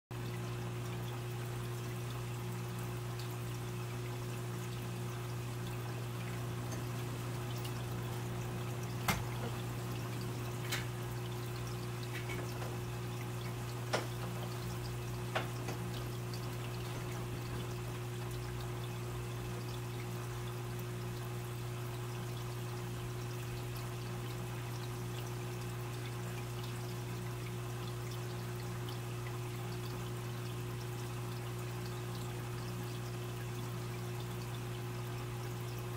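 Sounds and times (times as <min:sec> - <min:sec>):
water trickling in aquarium filter: 0:00.1 - 0:35.9.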